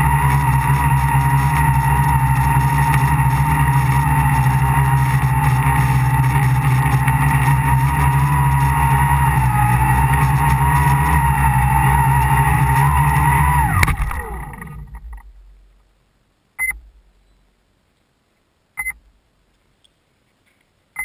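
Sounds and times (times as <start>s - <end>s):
electric motors and propellers whining: 0.0s - 15.3s
short electronic beeps: 16.6s - 17.4s, 18.8s - 19.0s.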